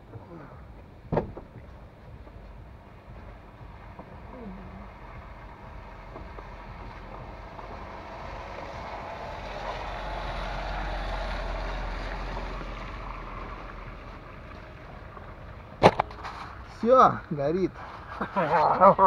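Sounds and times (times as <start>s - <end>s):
sharp knock: 1.1s - 1.6s
car passing on wet road: 3.4s - 16.7s.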